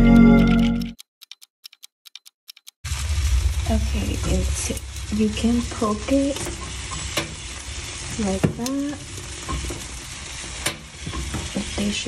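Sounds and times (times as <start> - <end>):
sharp clicks and taps: 0.0 - 2.8
pumpkin sizzling on baking tray: 2.8 - 12.0.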